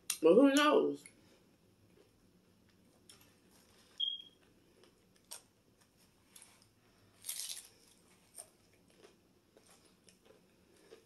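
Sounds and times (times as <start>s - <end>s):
faint chewing: 1.8s - 11.0s
hard taco shell crunching: 7.2s - 11.0s.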